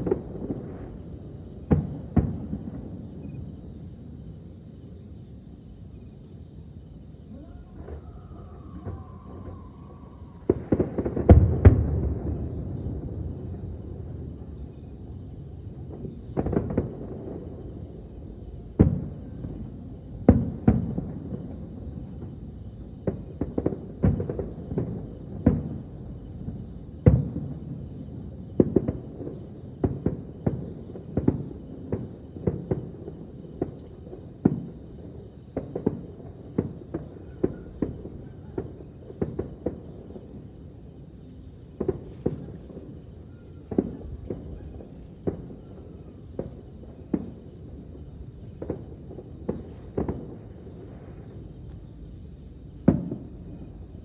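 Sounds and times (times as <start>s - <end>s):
distant fireworks booming: 0.0s - 54.0s.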